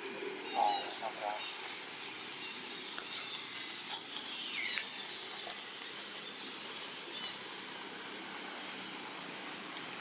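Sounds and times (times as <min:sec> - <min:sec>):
forest background hiss: 0:00.0 - 0:10.0
monkey high call: 0:00.4 - 0:01.6.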